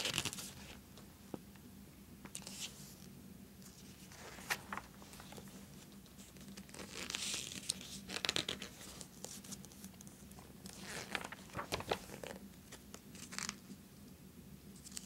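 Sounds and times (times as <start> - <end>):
magazine paper rustling: 3.9 - 13.6.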